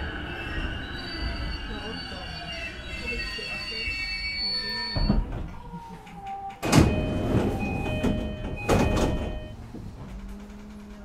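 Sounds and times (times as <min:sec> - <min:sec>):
train doors sliding: 0:00.0 - 0:11.0
door chime tones: 0:06.6 - 0:09.6.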